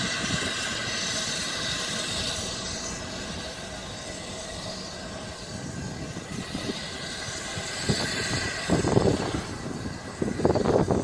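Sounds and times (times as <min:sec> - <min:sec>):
wind buffeting microphone: 0:00.0 - 0:02.4, 0:05.3 - 0:11.0
steam locomotive hissing: 0:00.0 - 0:11.0.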